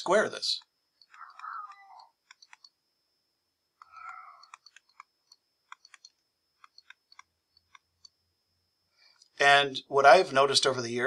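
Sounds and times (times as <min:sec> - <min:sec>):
stylus tapping on tablet screen: 0:01.0 - 0:02.8, 0:03.8 - 0:08.2.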